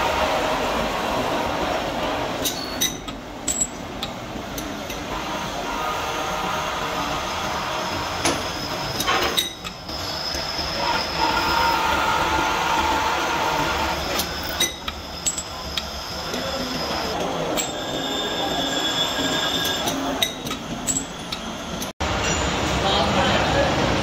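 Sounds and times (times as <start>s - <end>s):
drill bit squealing in steel: 7.8s - 22.5s.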